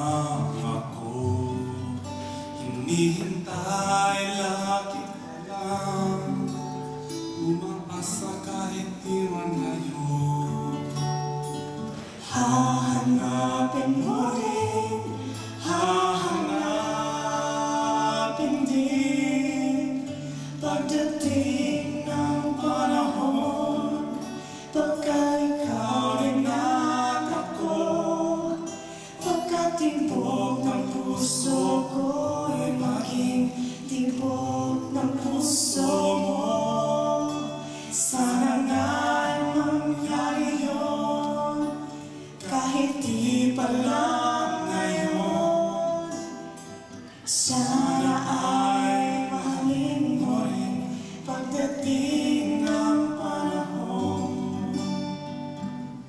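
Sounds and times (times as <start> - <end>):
man and woman singing: 0.0 - 55.7
acoustic guitars playing: 0.0 - 56.0.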